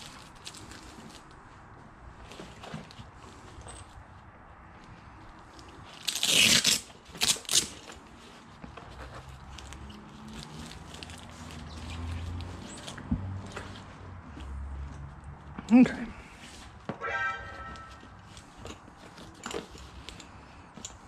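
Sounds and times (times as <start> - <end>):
fabric tearing rip: 6.0 - 7.7.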